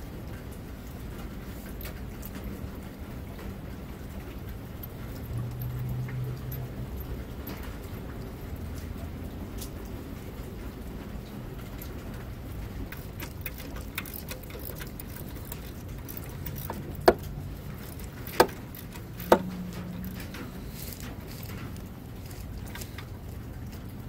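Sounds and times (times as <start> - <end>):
low steady hum: 12.8 - 24.0
wrench clinking on metal: 12.9 - 22.9
metallic ticks of plug threading: 12.9 - 23.1.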